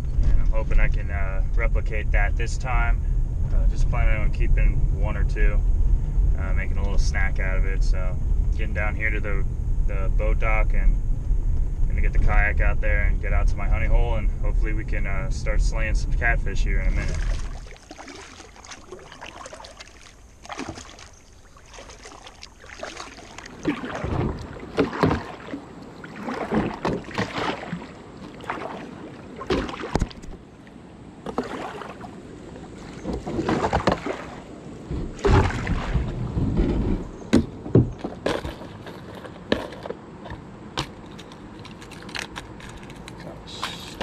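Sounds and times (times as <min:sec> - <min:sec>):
kayak paddle splashing in water: 0:16.8 - 0:30.4, 0:31.2 - 0:36.4.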